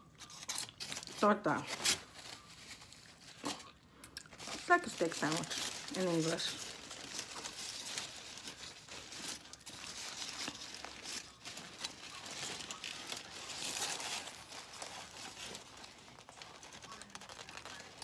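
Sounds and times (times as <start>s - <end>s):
aluminium foil crinkling: 0.0s - 18.0s.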